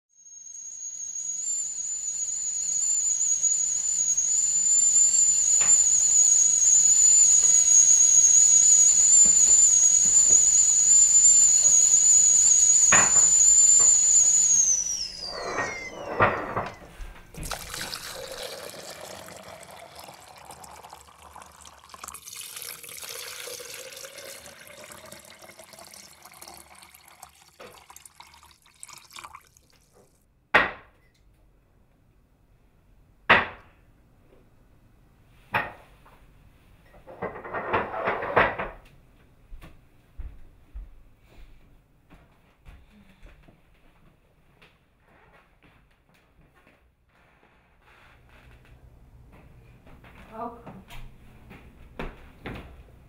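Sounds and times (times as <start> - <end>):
kettle whistling: 0.1 - 30.1
hot water pouring: 0.5 - 30.2.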